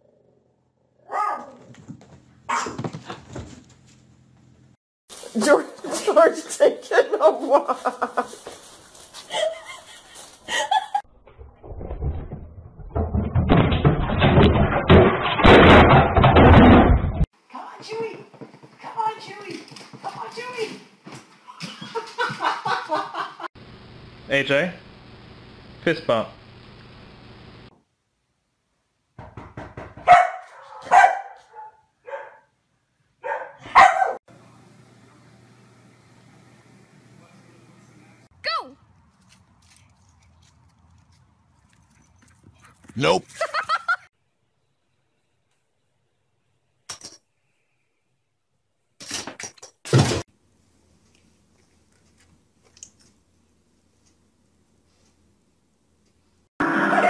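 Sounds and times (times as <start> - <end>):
dog barking: 1.0 - 1.7, 2.5 - 2.8, 30.0 - 32.5, 33.2 - 34.2
television falling with bangs: 12.2 - 17.3, 49.1 - 50.2.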